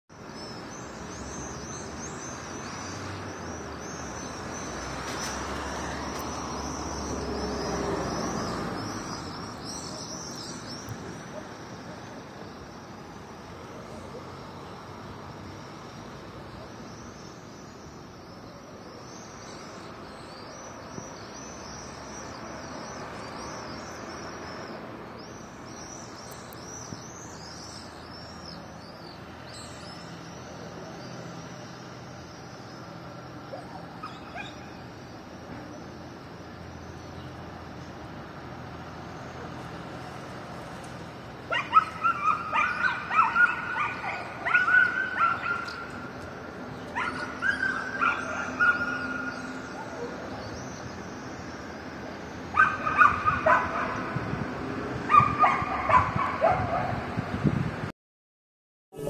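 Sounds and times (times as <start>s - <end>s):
dogs yelping and barking: 33.5s - 34.7s, 41.5s - 46.1s, 46.8s - 50.4s, 52.5s - 54.2s, 55.0s - 57.0s.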